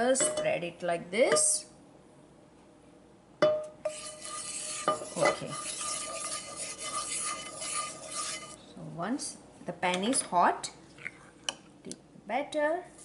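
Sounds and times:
spatula scraping around pan: 3.8 - 8.6.

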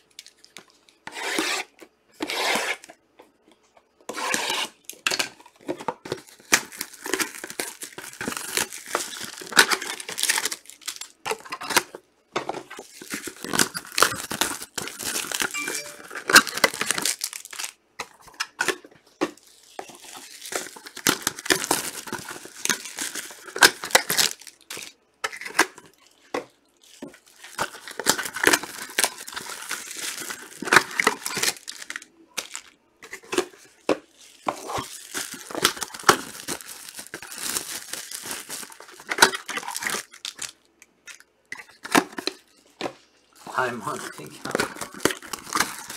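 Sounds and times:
card pack wrappers tearing and crinkling: 6.0 - 12.0, 12.7 - 18.8, 19.4 - 26.0, 26.8 - 40.7, 43.5 - 45.9.

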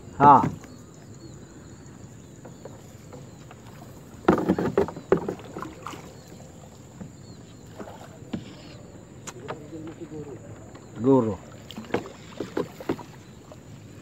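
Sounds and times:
water sloshing: 0.2 - 14.0
splashes and scrapes: 2.8 - 10.6, 11.4 - 14.0.

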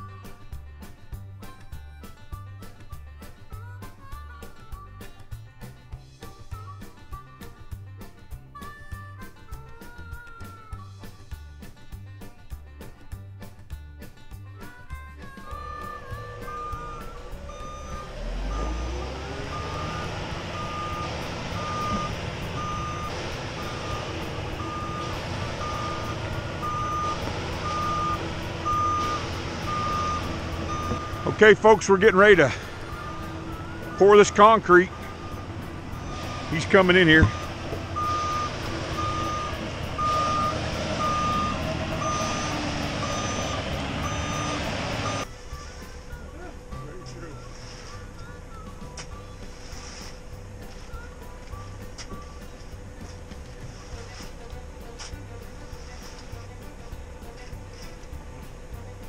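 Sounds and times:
diesel engine rumble: 0.0 - 59.0
reverse alarm beeping: 15.5 - 49.6.

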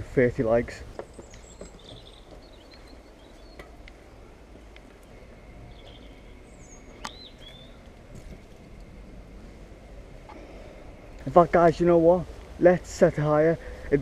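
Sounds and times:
faint outdoor background noise: 0.0 - 14.0.

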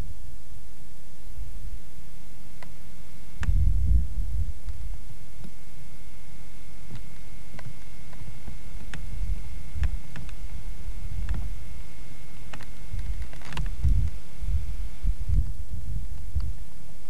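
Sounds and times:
faint steady high tone: 0.0 - 17.0
wind buffeting microphone: 3.4 - 4.9, 12.9 - 16.6
light clicks: 9.8 - 10.4.

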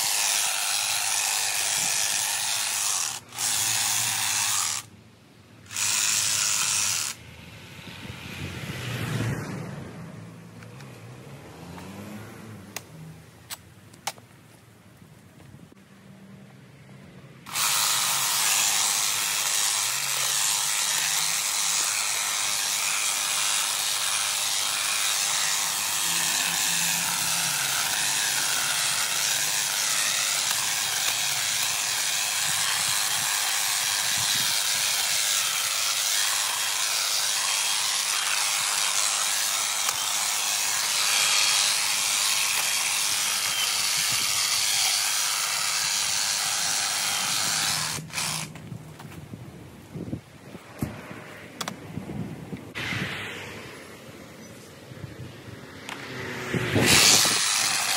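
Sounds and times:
hedge trimmer cutting: 0.0 - 4.9, 5.6 - 7.2, 17.5 - 48.8, 55.7 - 57.9.

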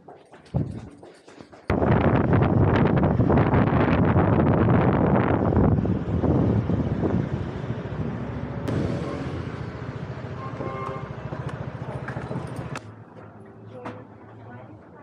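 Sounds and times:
wind on microphone: 1.7 - 8.8
vehicle running: 1.7 - 14.4.

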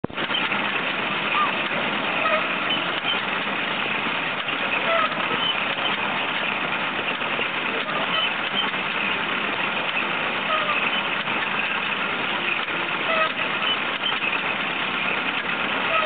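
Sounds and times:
baler working: 0.0 - 16.0.

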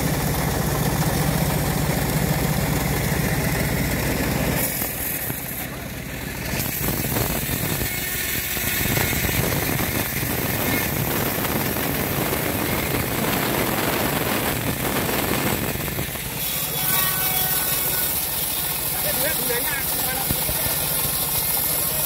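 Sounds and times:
sawmill engine droning: 0.0 - 22.0.

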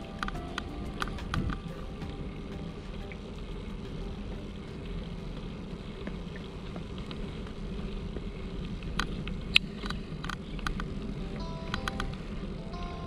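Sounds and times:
bicycle tyres rolling on pavement: 0.0 - 13.0
wind on microphone: 0.0 - 13.0
sharp clicks: 11.7 - 12.2.

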